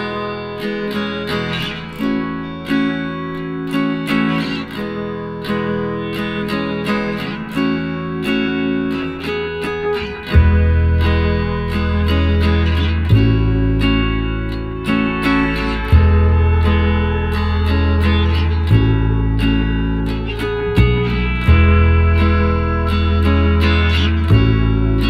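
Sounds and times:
plucked acoustic guitar: 0.0s - 25.0s
bass part: 10.3s - 25.0s.

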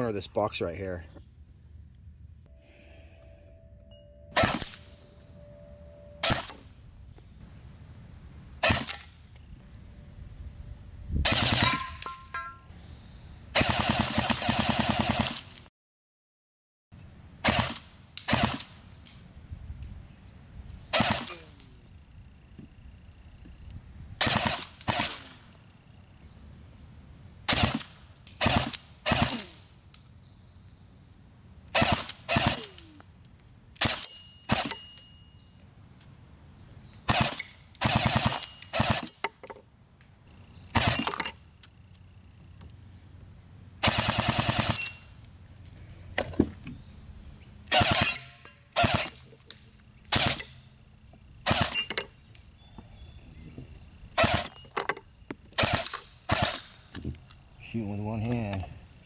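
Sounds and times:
bbs pinging metal targets: 3.7s - 7.1s, 11.5s - 12.7s, 32.4s - 33.0s, 33.8s - 35.5s, 37.3s - 39.7s, 51.5s - 52.2s
bb rifle firing bursts: 11.3s - 12.4s, 13.6s - 15.6s, 17.4s - 18.8s, 20.9s - 21.5s, 24.2s - 25.4s, 27.5s - 29.6s, 31.8s - 32.9s, 37.1s - 39.2s, 43.8s - 45.1s, 47.7s - 49.3s, 50.1s - 50.6s, 51.4s - 51.9s, 55.6s - 56.8s.

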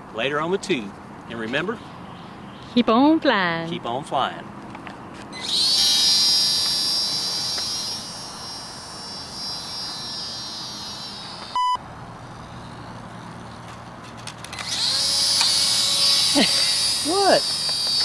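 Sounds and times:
small propeller motor whining: 5.3s - 18.0s
short electronic beep: 11.5s - 11.8s.

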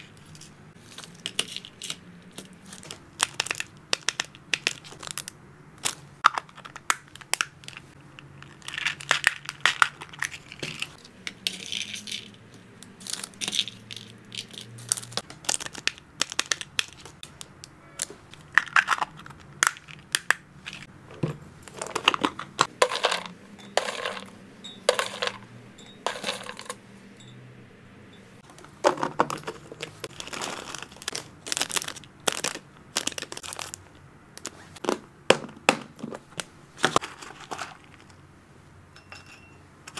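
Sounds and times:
plastic bags crinkling: 0.8s - 12.4s, 13.0s - 20.9s, 28.4s - 34.9s.

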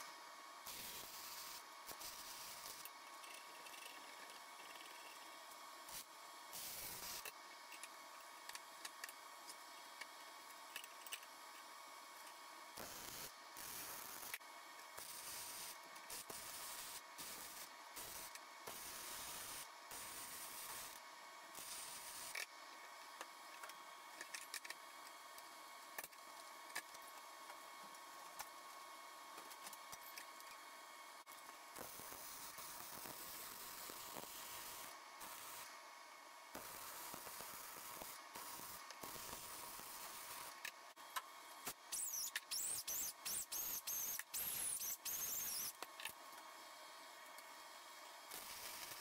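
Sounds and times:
arc welding hiss: 0.0s - 3.9s, 5.8s - 7.4s, 12.7s - 22.5s, 31.7s - 35.8s, 36.5s - 40.8s, 41.7s - 45.9s, 48.3s - 49.0s.

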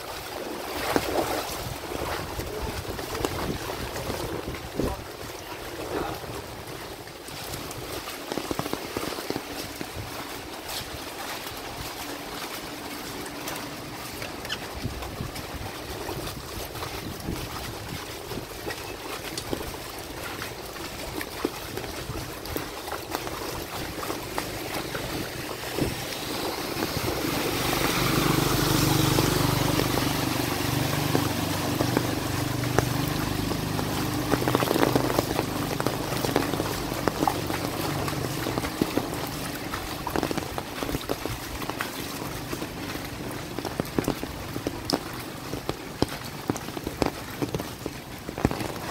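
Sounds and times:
rain falling: 0.0s - 48.9s
vehicle passing through water: 0.0s - 48.9s
water running and splashing: 0.0s - 48.9s.

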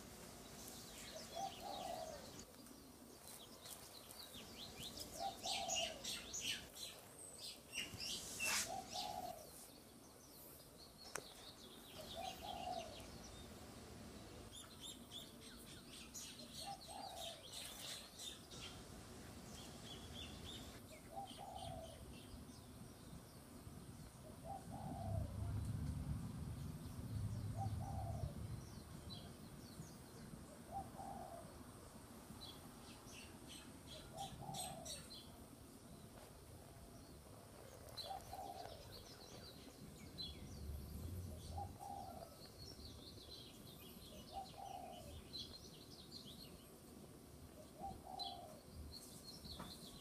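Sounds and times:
small birds chirping: 0.0s - 31.6s, 32.4s - 50.0s
doves cooing: 1.0s - 2.5s, 5.0s - 6.7s, 8.4s - 9.6s, 11.9s - 13.4s, 16.6s - 18.9s, 19.7s - 22.1s, 24.3s - 25.6s, 27.6s - 28.4s, 30.6s - 31.6s, 34.0s - 35.3s, 37.4s - 39.6s, 41.3s - 42.6s, 44.3s - 45.3s, 47.6s - 48.7s.

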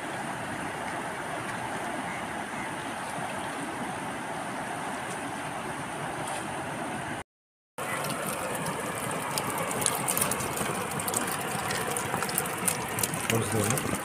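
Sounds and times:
river water rushing over weir: 7.8s - 14.0s.

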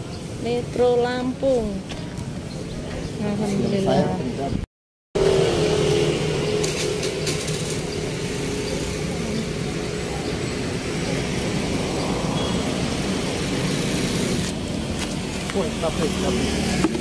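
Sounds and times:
road traffic: 0.0s - 17.0s
engine droning: 5.2s - 17.0s.

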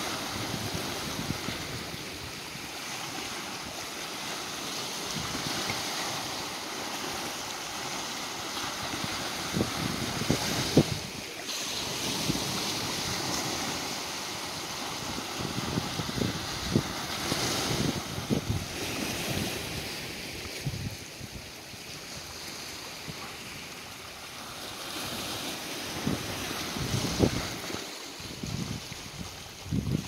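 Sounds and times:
small waves breaking on shore: 0.0s - 30.0s
wind buffeting microphone: 8.9s - 21.9s, 25.9s - 30.0s.

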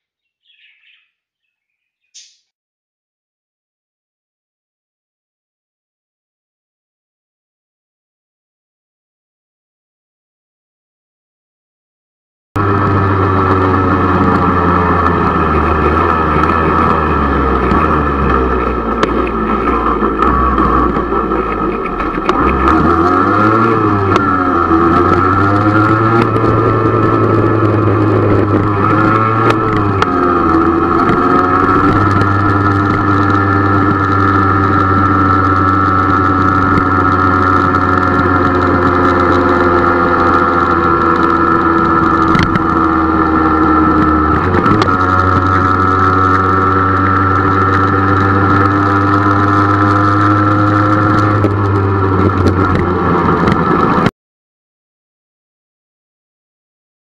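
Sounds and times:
motorcycle engine running: 12.6s - 54.1s.

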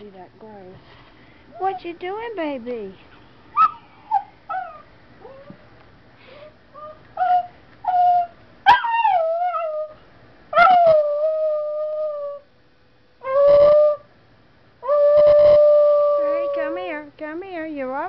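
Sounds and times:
small dog yelping: 3.5s - 5.6s, 6.8s - 11.2s, 14.8s - 16.9s
small dog howling: 3.6s - 5.6s, 6.8s - 12.5s, 13.2s - 14.1s, 14.8s - 16.9s.

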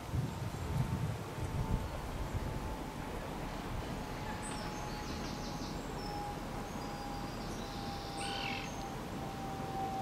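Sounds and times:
steady background hiss: 0.0s - 10.0s
faint steady tone: 0.1s - 10.0s
small birds chirping: 4.1s - 9.0s.

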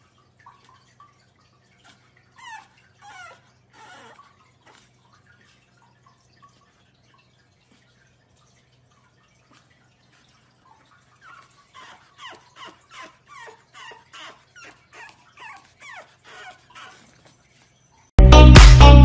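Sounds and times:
puppy whimpering and yelping: 1.8s - 4.9s, 11.1s - 18.1s.

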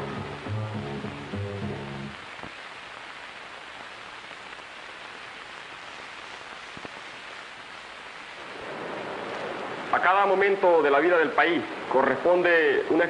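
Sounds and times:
film soundtrack hiss: 0.0s - 13.0s.

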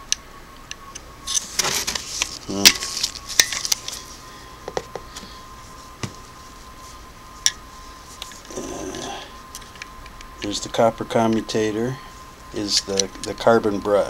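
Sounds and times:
rustling: 1.3s - 4.3s.

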